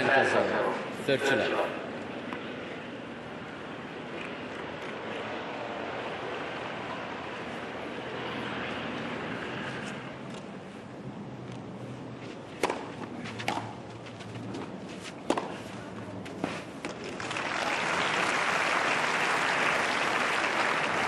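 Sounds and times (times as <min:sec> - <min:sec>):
racket hitting tennis ball: 0:12.2 - 0:17.2
crowd applause: 0:17.0 - 0:21.0.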